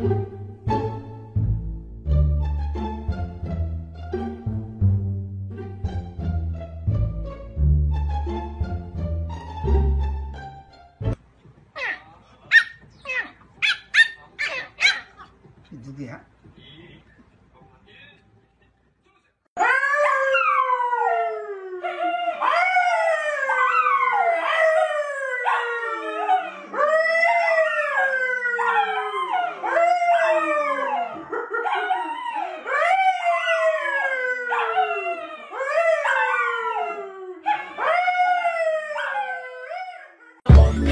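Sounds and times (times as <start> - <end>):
dogs howling: 19.6 - 40.5.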